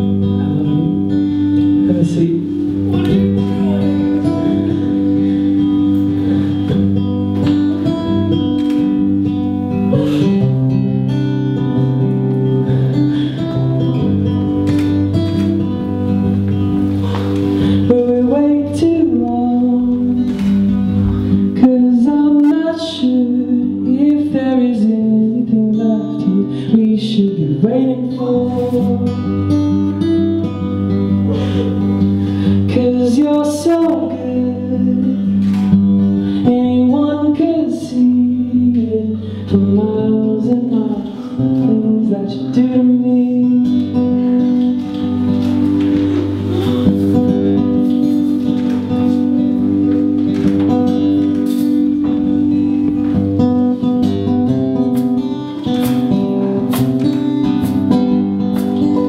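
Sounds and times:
man singing: 0.0 - 8.0, 9.7 - 11.0, 17.1 - 29.6, 31.1 - 47.7
acoustic guitar: 0.0 - 59.0.

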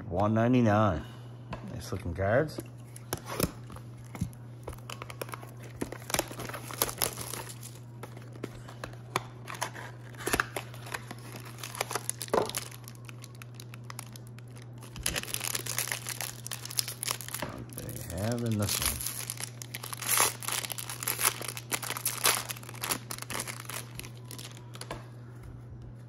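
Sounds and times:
steady low hum: 0.0 - 26.0
foil crinkling and tearing: 3.2 - 25.0.

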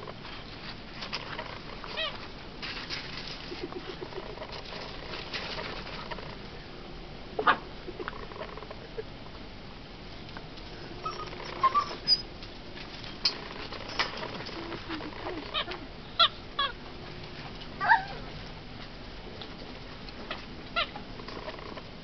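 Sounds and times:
paws scuffling on gravel: 0.3 - 6.2
puppy squeak: 11.0 - 12.2
puppy yips: 11.0 - 12.2, 17.8 - 18.3.

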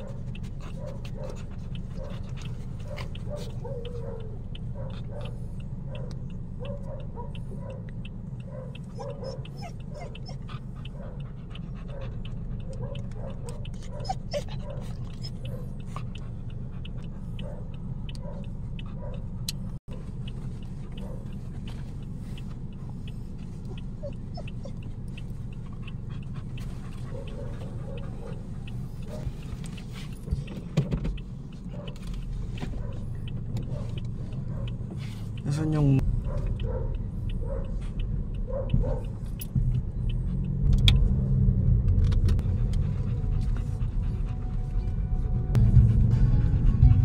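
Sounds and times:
car cabin rumble: 0.0 - 47.0
dog whimpering: 8.8 - 11.2, 12.6 - 15.8, 23.8 - 24.9.

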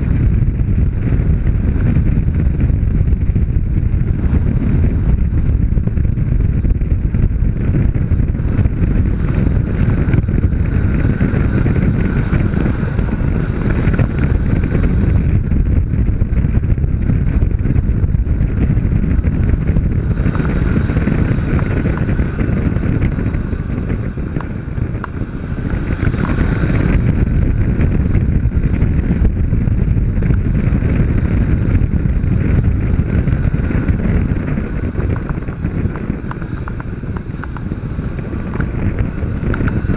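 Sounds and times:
motorcycle engine running: 0.0 - 39.9
wind rushing over microphone: 0.0 - 39.9.

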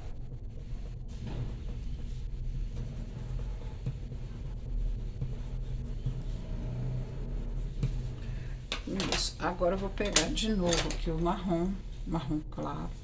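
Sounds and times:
pencil scratching on paper: 2.0 - 8.2.

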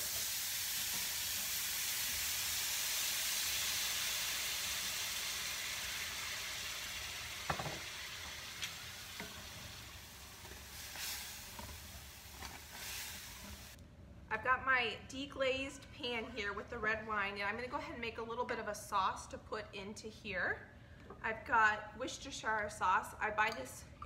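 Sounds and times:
wine sizzling in skillet: 0.0 - 13.8
knock on pan: 7.4 - 7.9.

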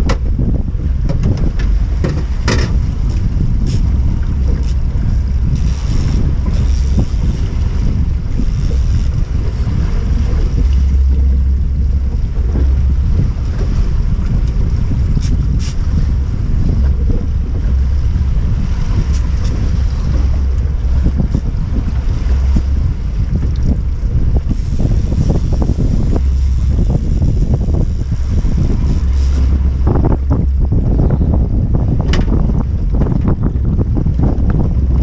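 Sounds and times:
choppy waves: 0.0 - 35.0
wind buffeting microphone: 0.0 - 35.0.

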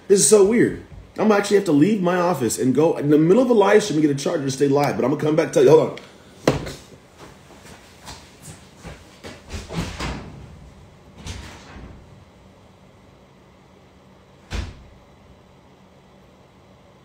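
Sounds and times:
footsteps running: 6.5 - 9.9
door shutting: 9.4 - 12.3, 14.4 - 15.0.

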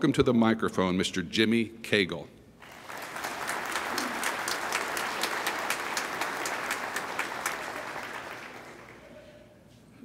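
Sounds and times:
audience applauding: 2.6 - 9.5.

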